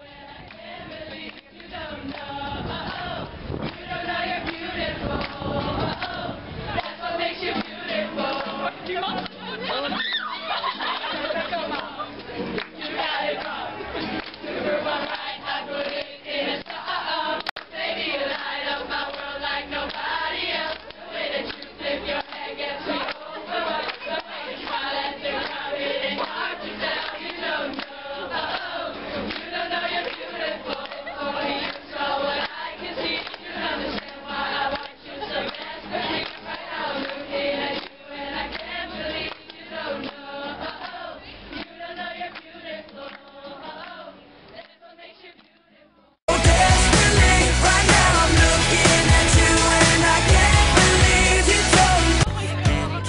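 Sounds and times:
group of girls singing: 0.0 - 53.0
hand-clapping: 4.4 - 6.2, 6.8 - 9.4, 10.9 - 14.4, 15.0 - 16.8, 17.4 - 19.3, 19.9 - 20.1, 20.7 - 31.8, 32.4 - 41.0.

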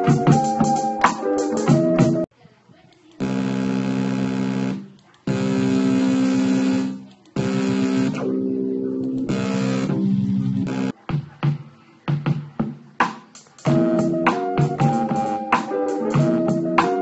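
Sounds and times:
electronic keyboard chords: 0.0 - 2.3, 3.4 - 11.0, 13.6 - 17.0.

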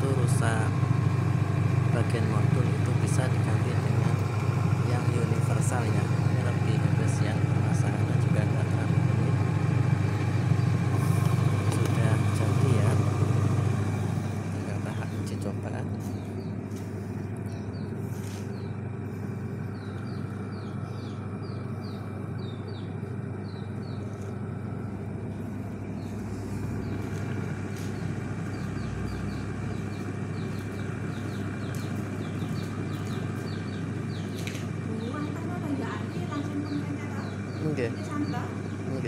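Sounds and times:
washing machine motor hum: 0.0 - 39.0.

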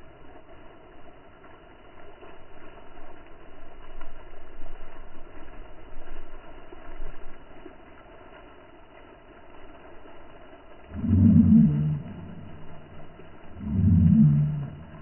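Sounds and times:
steady rushing noise: 10.9 - 15.0.

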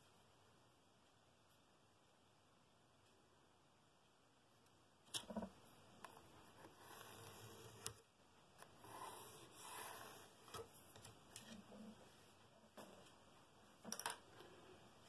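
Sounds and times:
pencil scratching on wood: 6.5 - 8.0, 8.6 - 10.8.

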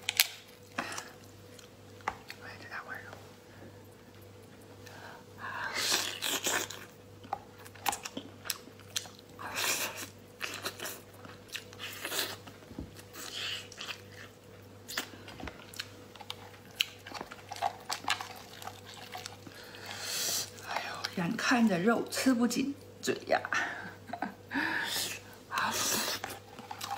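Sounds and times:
wet chewing: 5.8 - 21.2, 25.2 - 26.9.

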